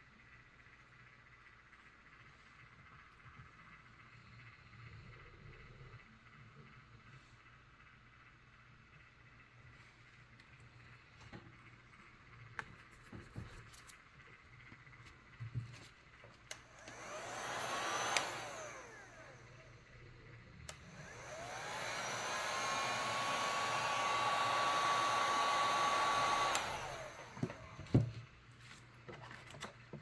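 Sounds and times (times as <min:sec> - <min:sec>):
heat gun fan whine: 0:08.9 - 0:28.5.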